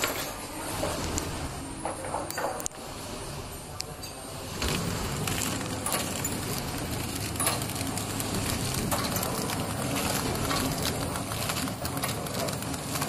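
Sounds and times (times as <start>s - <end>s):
machine clicking: 4.6s - 13.0s
packing machine humming: 4.6s - 13.0s.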